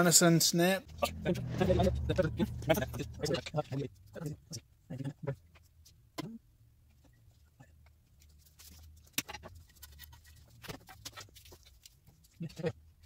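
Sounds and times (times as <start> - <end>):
steady low hum: 0.8 - 5.5.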